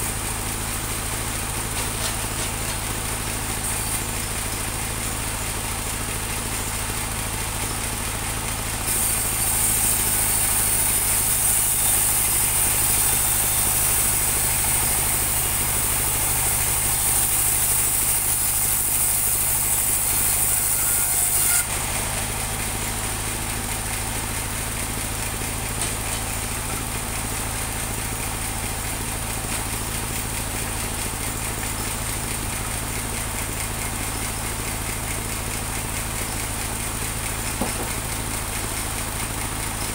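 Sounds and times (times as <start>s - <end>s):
bandsaw sawmill engine running: 0.0s - 39.9s
saw blade hissing through log: 8.9s - 21.8s.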